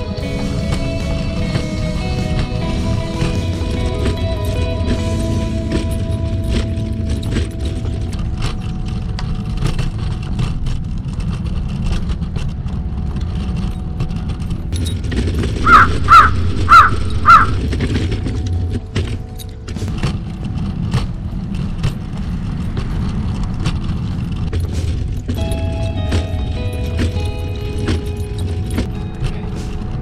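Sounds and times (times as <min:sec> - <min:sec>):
steady low rumble: 0:00.0 - 0:30.0
crow cawing: 0:15.6 - 0:17.6.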